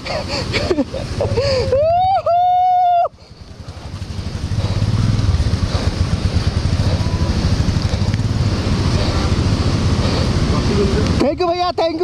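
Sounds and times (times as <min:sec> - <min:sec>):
motorcycle engine running: 0:03.3 - 0:12.0.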